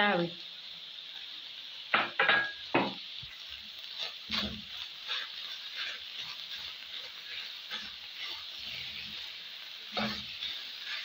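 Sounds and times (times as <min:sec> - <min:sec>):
onions sizzling in a frying pan: 0:00.0 - 0:11.0
spoon scraping a pan: 0:03.9 - 0:11.0.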